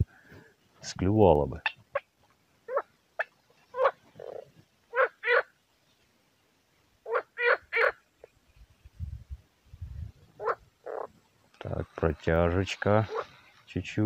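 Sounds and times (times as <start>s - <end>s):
frogs croaking: 1.6s - 5.6s, 7.0s - 8.4s, 10.3s - 13.7s.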